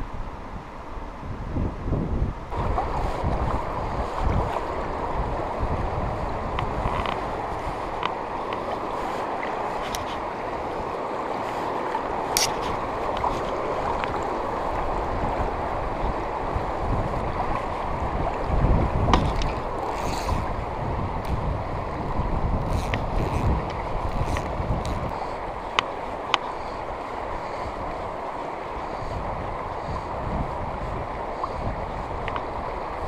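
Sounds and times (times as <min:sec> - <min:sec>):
river current rushing: 0:02.5 - 0:33.0.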